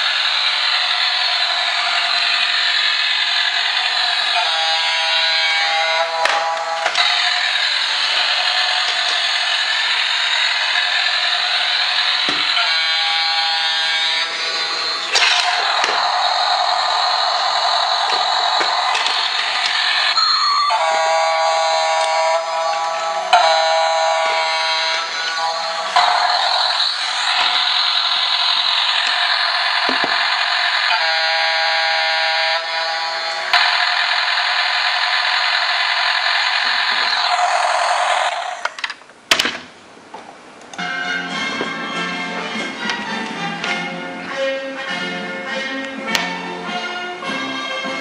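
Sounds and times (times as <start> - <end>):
toy motor and gears whirring: 0.0 - 38.8
steady pitched tone: 10.2 - 38.6.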